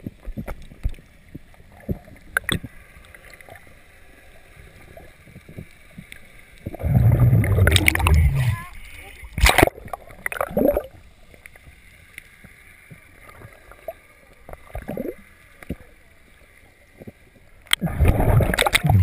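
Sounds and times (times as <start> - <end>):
water splashing: 0.0 - 11.7, 17.0 - 19.0
faint underwater clicks: 0.0 - 19.0
muffled underwater hush: 6.6 - 11.0.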